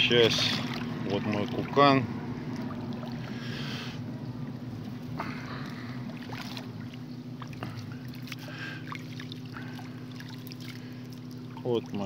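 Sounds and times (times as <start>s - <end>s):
motorboat engines humming: 0.0s - 12.0s
fish stringer splashing and clicking: 6.2s - 12.0s.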